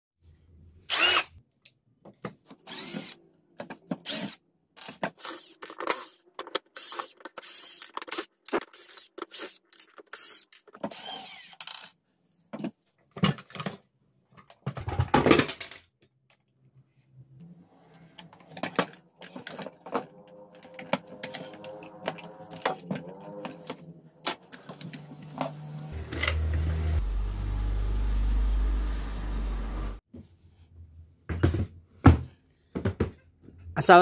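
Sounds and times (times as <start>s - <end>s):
cordless screwdriver spinning: 0.9s - 1.3s, 2.6s - 3.2s, 4.1s - 6.2s, 6.8s - 11.9s.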